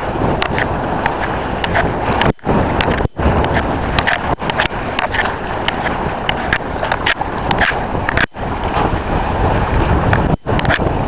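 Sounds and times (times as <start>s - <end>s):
strong wind on microphone: 0.0s - 11.0s
water washing along hull: 0.0s - 11.0s
sharp clicks and rattles: 0.4s - 8.4s, 10.1s - 10.9s.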